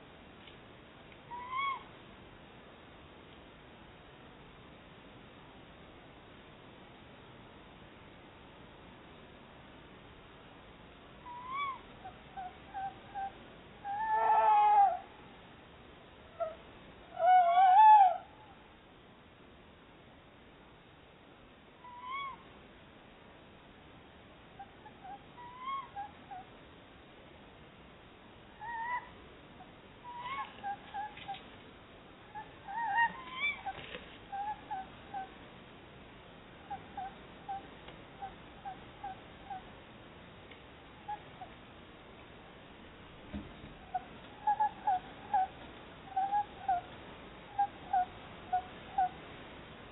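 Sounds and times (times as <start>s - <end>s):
owls calling: 1.2s - 1.9s, 11.2s - 15.1s, 16.3s - 18.5s, 21.8s - 22.5s, 24.6s - 26.5s, 28.6s - 29.2s, 30.0s - 31.4s, 32.3s - 35.4s, 36.6s - 39.7s, 41.0s - 41.6s, 43.8s - 49.2s.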